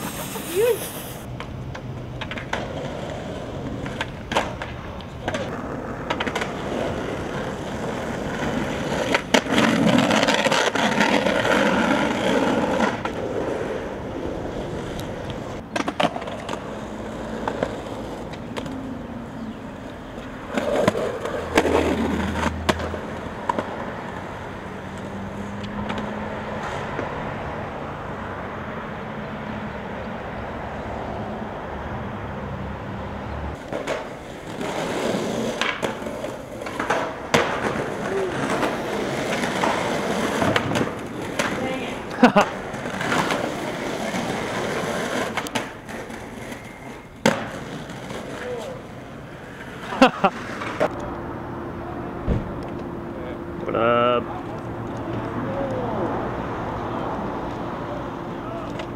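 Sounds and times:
skateboard clacks: 0:00.0 - 0:18.9, 0:19.8 - 0:27.2, 0:33.6 - 0:51.0, 0:58.5 - 0:58.9
skateboard wheels rolling on asphalt: 0:00.0 - 0:58.9.

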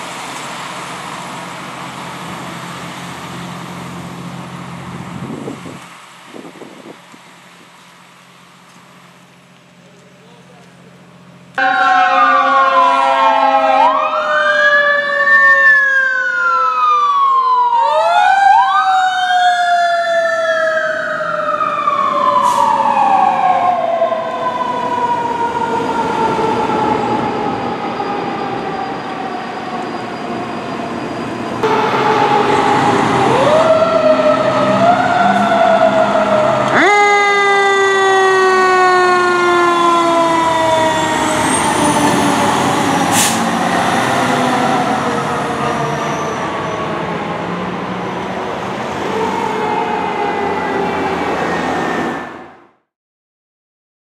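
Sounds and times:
siren wailing up and down: 0:11.6 - 0:48.3, 0:48.9 - 0:52.6
steady falling siren tone: 0:11.6 - 0:52.8.

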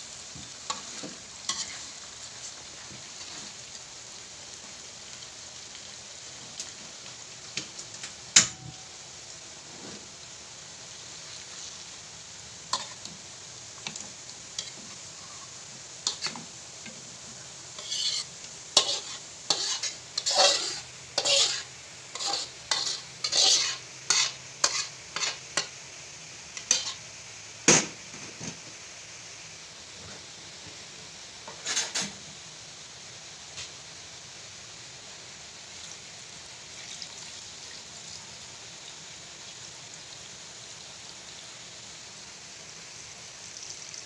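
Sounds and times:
faint steady hiss: 0:00.0 - 0:44.0
metal spatula scraping wok: 0:00.6 - 0:02.0, 0:14.6 - 0:16.5, 0:17.8 - 0:25.7, 0:26.6 - 0:27.0, 0:31.5 - 0:32.2.

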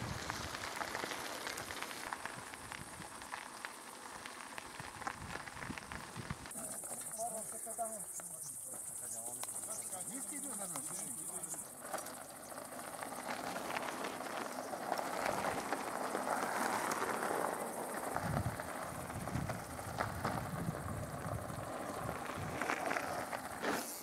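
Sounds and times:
bike tyres crunching on gravel: 0:00.0 - 0:24.0
insects chirping: 0:00.0 - 0:24.0
faint voices: 0:06.5 - 0:11.7.

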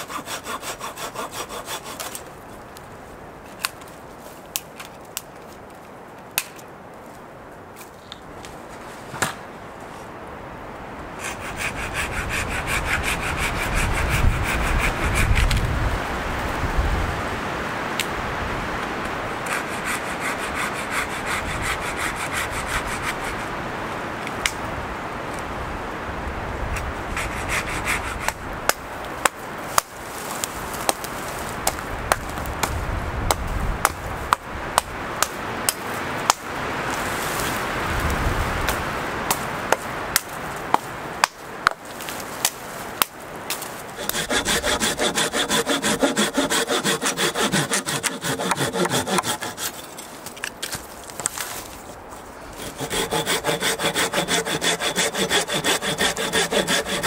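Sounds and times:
folding saw cutting log: 0:00.0 - 0:02.3, 0:11.2 - 0:15.6, 0:19.4 - 0:23.5, 0:27.2 - 0:28.4, 0:43.5 - 0:51.9, 0:52.5 - 0:57.0
twigs and branches snapping: 0:02.0 - 0:07.1, 0:28.7 - 0:34.0, 0:38.6 - 0:44.2, 0:50.0 - 0:52.2.

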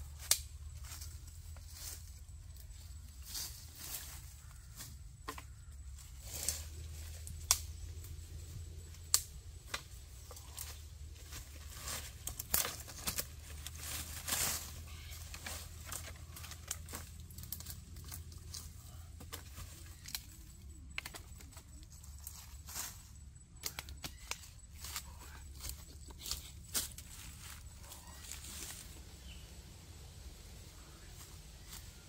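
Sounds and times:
leaves and twigs rustling underfoot: 0:00.0 - 0:32.0
low steady hum: 0:00.0 - 0:32.0
twigs snapping: 0:00.2 - 0:01.0, 0:06.3 - 0:08.2, 0:08.8 - 0:21.6, 0:23.6 - 0:25.0.

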